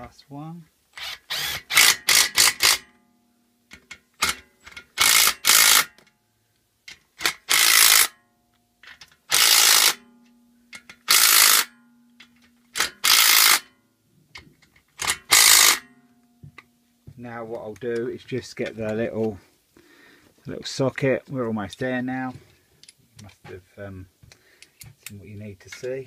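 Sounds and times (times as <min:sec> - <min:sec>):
impact driver running: 0:01.0 - 0:02.8, 0:05.0 - 0:05.9, 0:15.3 - 0:15.8.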